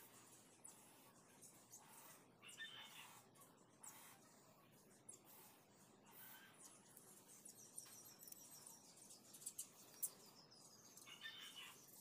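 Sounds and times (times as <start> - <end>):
marker squeaking on paper: 0.0 - 7.0.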